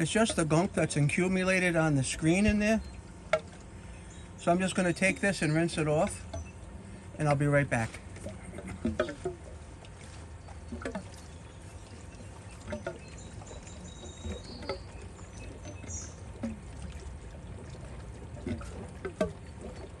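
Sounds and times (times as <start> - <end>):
water drips: 0.0 - 20.0
water trickling: 0.0 - 20.0.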